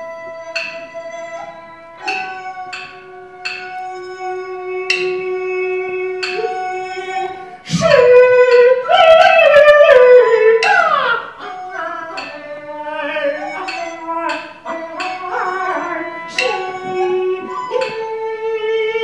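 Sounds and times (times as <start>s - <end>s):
held wind instrument tone: 0.0s - 19.0s
plucked string notes: 0.0s - 19.0s
person singing opera: 4.5s - 19.0s.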